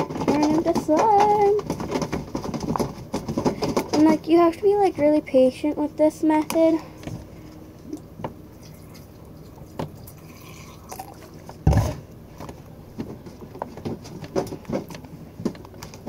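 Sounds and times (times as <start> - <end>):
slime stirred sticky squelches: 7.7 - 11.9.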